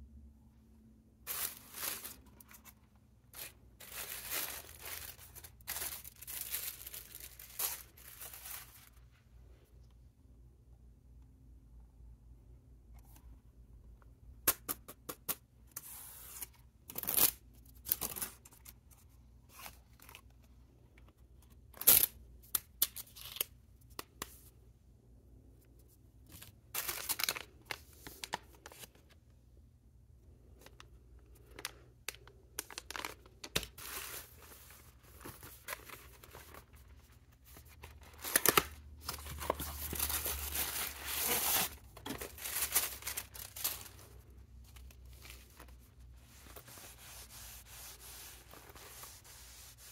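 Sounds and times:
plastic film and paper crinkling: 1.3 - 9.1, 26.3 - 29.0, 30.6 - 49.9.

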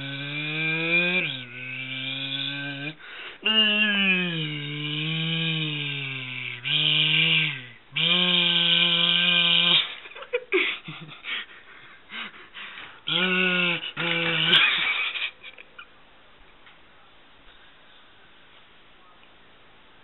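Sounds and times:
person imitating a helicopter: 0.0 - 10.0, 13.1 - 15.4.

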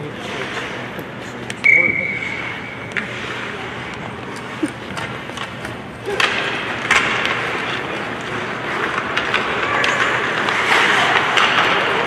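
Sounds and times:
sticks clacking on puck: 2.9 - 12.0
skate blades scraping ice: 3.0 - 12.0.

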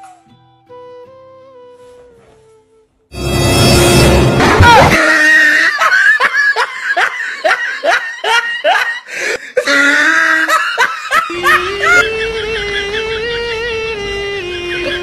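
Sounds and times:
music with long held note: 0.0 - 4.7, 11.3 - 15.0
person laughing: 4.8 - 13.5, 14.5 - 15.0.

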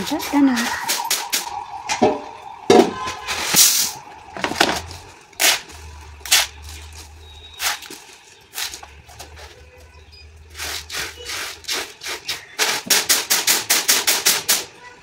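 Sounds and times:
grain rustling: 4.8 - 12.4.

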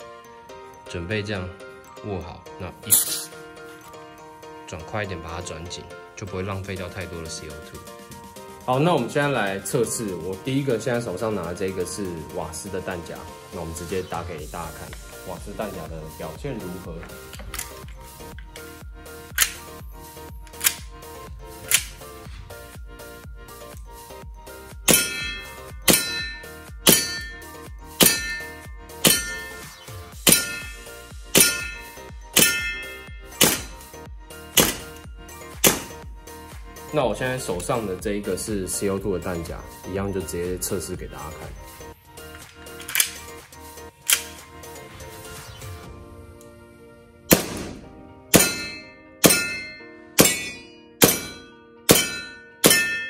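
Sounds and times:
airsoft pistol shots: 33.3 - 33.8, 34.6 - 34.9, 35.6 - 36.0, 47.3 - 49.6, 50.2 - 53.0.

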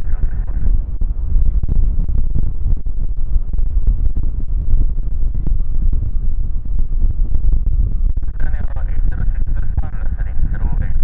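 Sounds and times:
jet engines rumbling drone: 0.0 - 11.0
wind buffeting microphone: 0.0 - 11.0.

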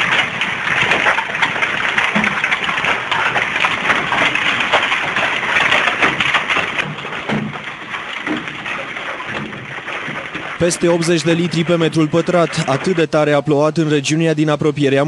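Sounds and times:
hailstones falling on a roof: 0.0 - 13.4.

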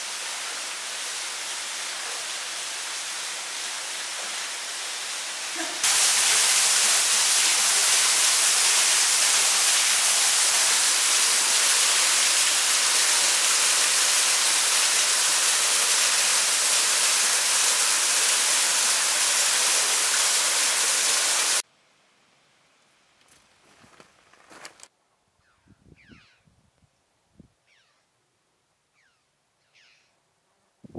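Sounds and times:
rush of falling water: 0.0 - 21.6.

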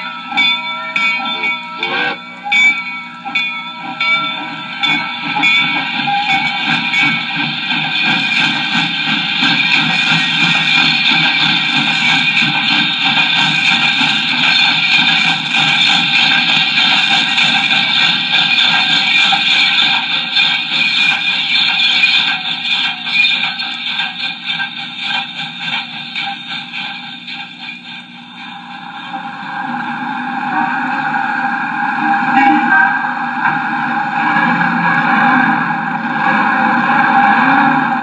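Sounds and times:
steady ringing tones: 0.0 - 36.2.

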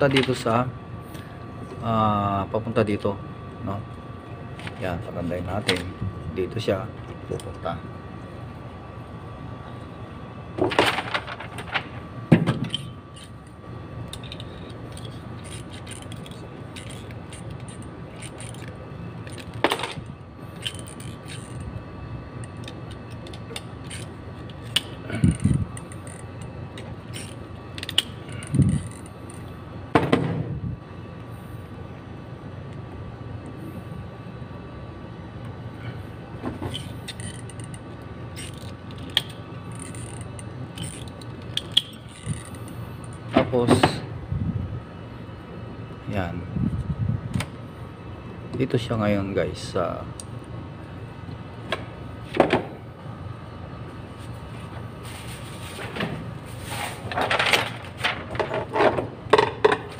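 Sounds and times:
steady background hum: 0.0 - 59.9
knocks clicks and rustling of handling: 5.6 - 5.9, 10.6 - 13.5, 14.1 - 21.7, 51.6 - 52.8, 55.7 - 59.9.

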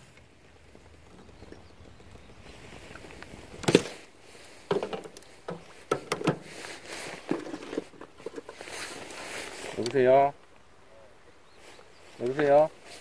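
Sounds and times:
rustling: 0.0 - 10.7, 11.4 - 13.0
fishing gear knocks and clicks: 0.8 - 9.2.

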